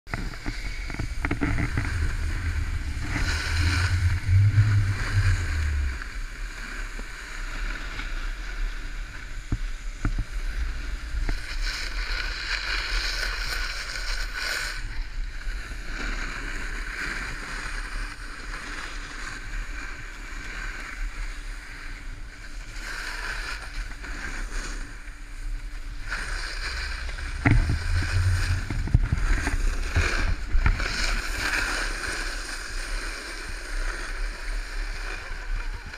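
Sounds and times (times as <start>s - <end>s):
wind buffeting microphone: 0.1s - 7.3s, 25.8s - 31.3s
skis sliding on snow: 0.1s - 35.9s.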